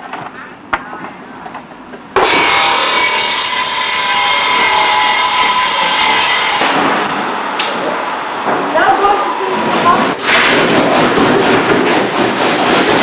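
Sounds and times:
power tool cutting wood: 0:02.2 - 0:06.8.

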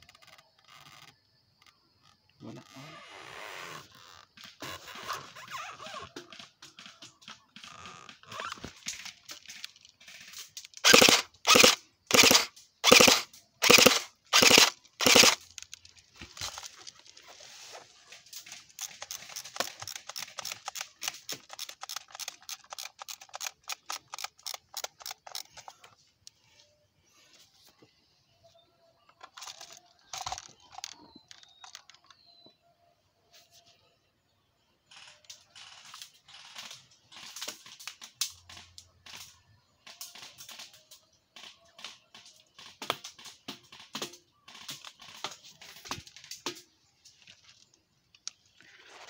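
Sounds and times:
airsoft guns firing: 0:08.9 - 0:15.5.

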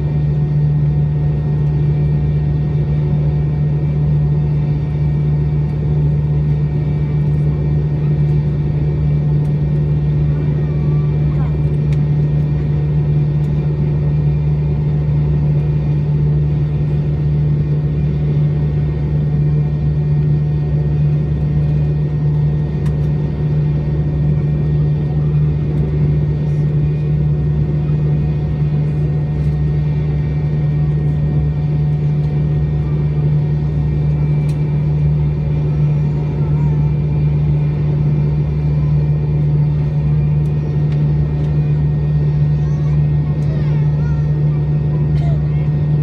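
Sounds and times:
aircraft cabin hum and rush: 0:00.0 - 0:46.0.

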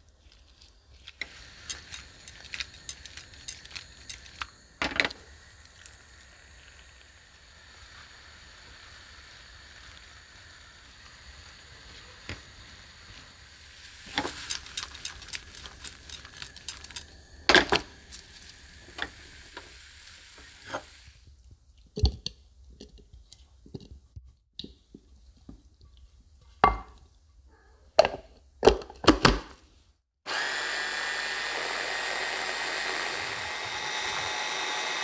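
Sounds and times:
fruit sizzling in a frying pan: 0:01.0 - 0:21.3.

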